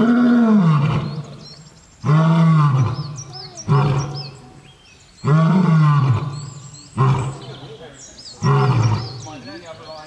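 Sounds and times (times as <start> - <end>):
lion roaring: 0.0 - 1.4, 2.0 - 4.4, 5.2 - 7.6, 8.4 - 9.3.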